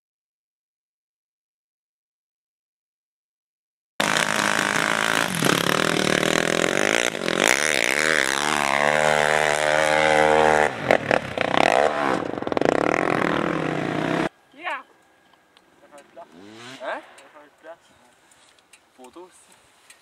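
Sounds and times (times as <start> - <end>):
quad bike engine revving: 4.0 - 14.3, 15.9 - 17.4.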